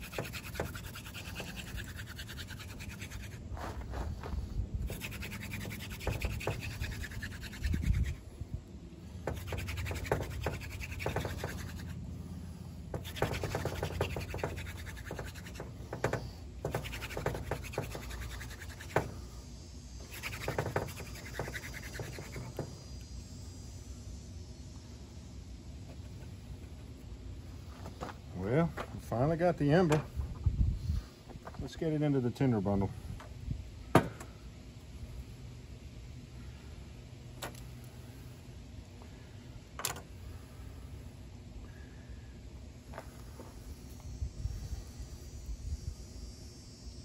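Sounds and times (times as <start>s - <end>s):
wooden spindle scratching fireboard: 0.0s - 8.3s, 9.2s - 12.0s, 12.9s - 19.4s, 20.0s - 22.8s.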